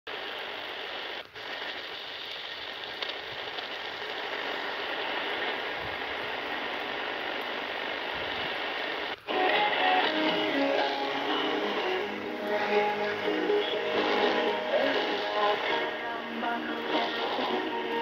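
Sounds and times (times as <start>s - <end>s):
radio static hiss: 0.1s - 18.0s.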